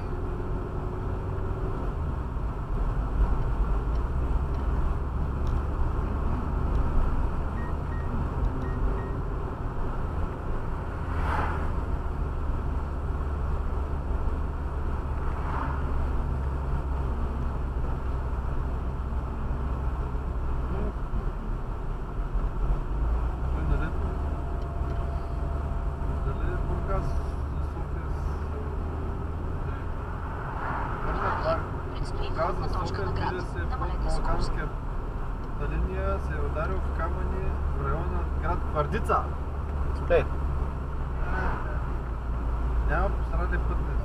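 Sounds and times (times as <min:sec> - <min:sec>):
road and engine rumble: 0:00.0 - 0:44.0
passing car whoosh: 0:08.2 - 0:17.0, 0:28.2 - 0:34.7.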